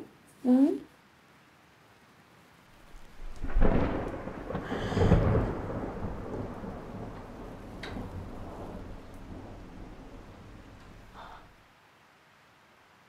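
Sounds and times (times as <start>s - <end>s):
thunder clap and rumble: 3.0s - 11.6s.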